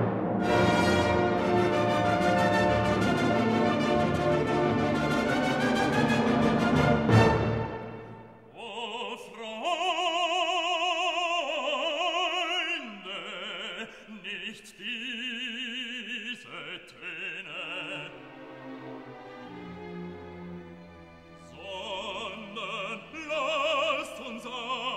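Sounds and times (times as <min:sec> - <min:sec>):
orchestral chord: 0:00.0 - 0:08.4
operatic voice with vibrato: 0:08.5 - 0:18.5, 0:21.4 - 0:24.9.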